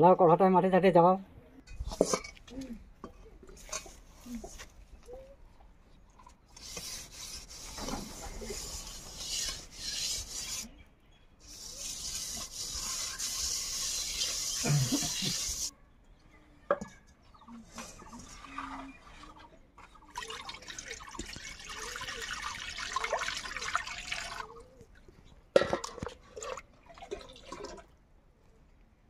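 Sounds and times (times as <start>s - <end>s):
rasping scrape on metal wok: 6.6s - 10.7s, 11.4s - 15.7s.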